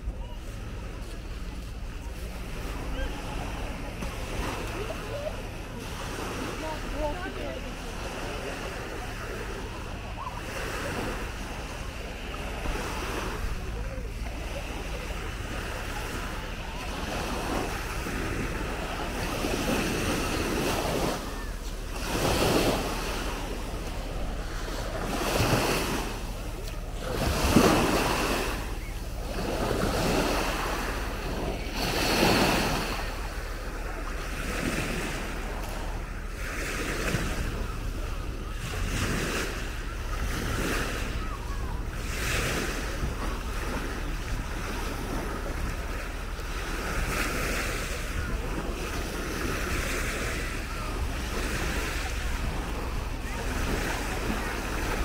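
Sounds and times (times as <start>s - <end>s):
small waves washing onto shore: 0.0s - 55.0s
wind buffeting microphone: 0.0s - 55.0s.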